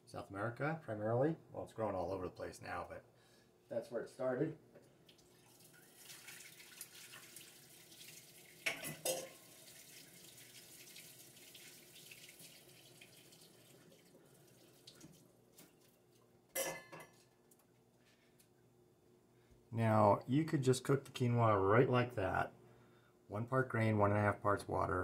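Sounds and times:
tap water running into sink: 5.1s - 15.3s.

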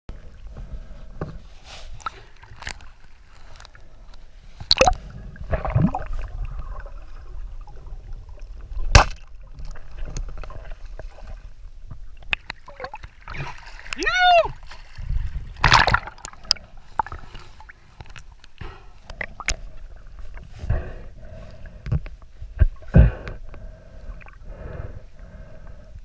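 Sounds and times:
underwater water rumble: 0.1s - 13.9s, 14.6s - 17.9s.

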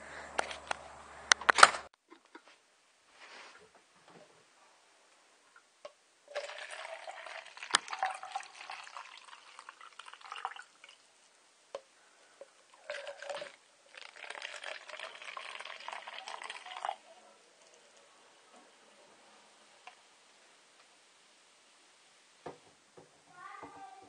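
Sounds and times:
liquid splashing and trickling: 6.3s - 11.2s, 12.7s - 18.0s.

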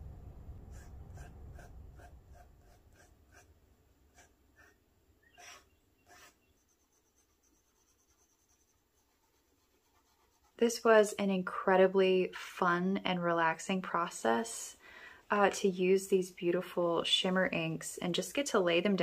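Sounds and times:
low rumble: 0.0s - 3.0s.

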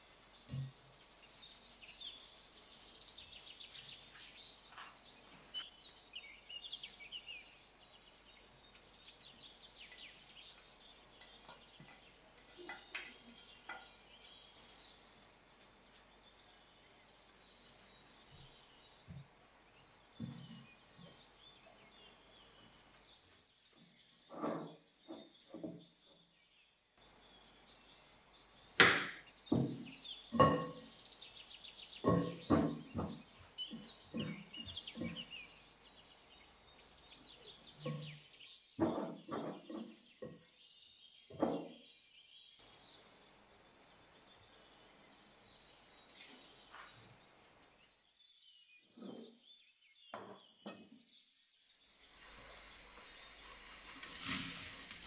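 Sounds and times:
birds chirping faintly: 0.0s - 55.0s
kitchen utensils and dishes clinking: 29.6s - 31.0s, 32.0s - 35.3s, 37.7s - 38.2s.

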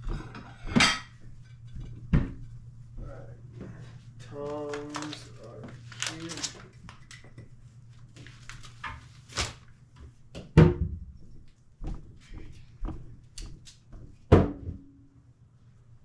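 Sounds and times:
dishes clattering: 0.0s - 2.5s.

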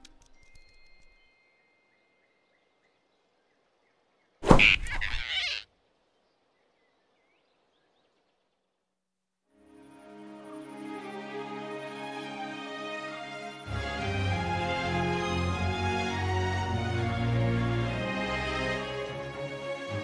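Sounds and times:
cartoon rushing swish: 4.4s - 5.6s.

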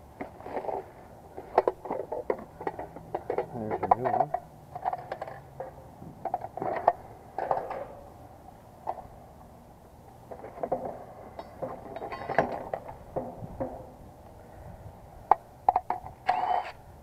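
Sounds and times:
tools and parts clicking and knocking: 1.4s - 8.0s, 10.3s - 13.9s, 15.3s - 16.6s.

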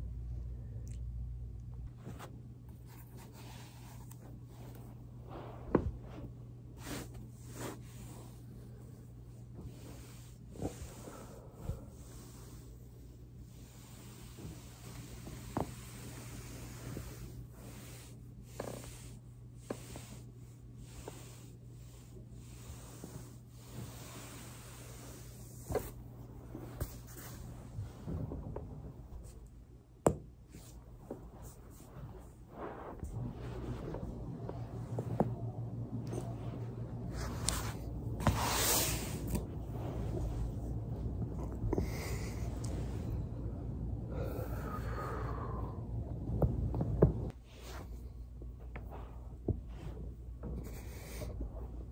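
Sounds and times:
steady low hum: 0.0s - 51.9s
foam roller rubbing on carpet: 2.0s - 29.5s, 30.5s - 43.3s, 46.4s - 51.9s
person breathing: 10.8s - 13.0s, 41.6s - 46.4s.

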